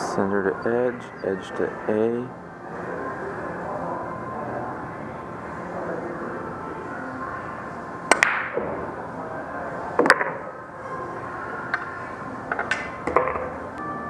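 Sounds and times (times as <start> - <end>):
steady room hum: 0.0 - 14.0
pool balls clicking: 8.1 - 8.9, 10.0 - 10.5, 12.5 - 14.0.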